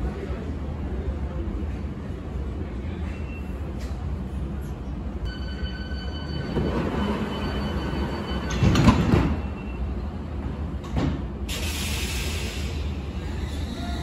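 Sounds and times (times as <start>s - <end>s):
train door warning tone: 5.3s - 10.0s.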